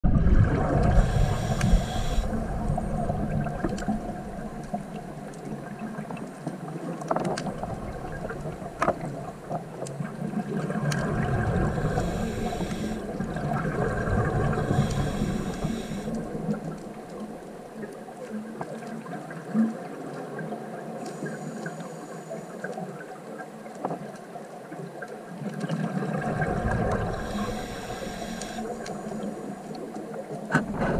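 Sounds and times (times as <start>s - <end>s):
regulator bubbles gurgling underwater: 0.0s - 30.9s
faint clicks in water: 0.5s - 30.9s.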